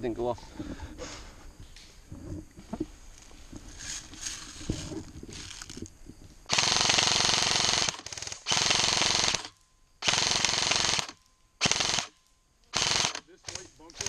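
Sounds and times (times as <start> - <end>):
quiet rustling: 0.0 - 6.5
airsoft rifles firing bursts: 6.5 - 14.0.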